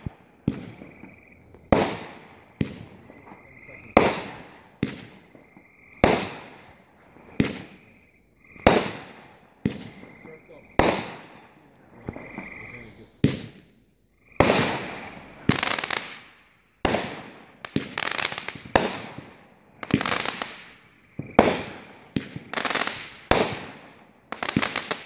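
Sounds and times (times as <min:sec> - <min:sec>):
firework shots firing: 0:00.0 - 0:07.9, 0:08.6 - 0:12.5, 0:13.2 - 0:13.7, 0:14.4 - 0:25.0
crackling firework stars: 0:00.0 - 0:25.0.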